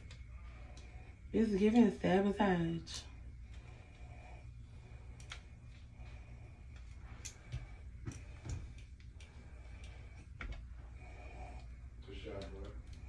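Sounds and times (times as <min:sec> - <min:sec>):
low steady hum: 0:00.0 - 0:13.0
curling iron clicks and taps: 0:05.1 - 0:10.7, 0:11.6 - 0:13.0.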